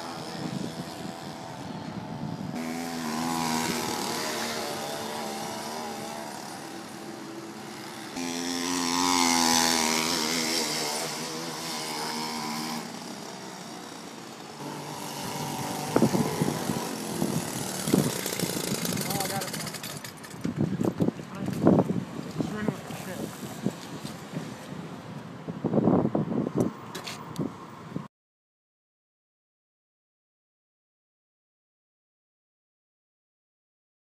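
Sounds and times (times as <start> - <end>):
two-stroke engine running: 0.0 - 21.7.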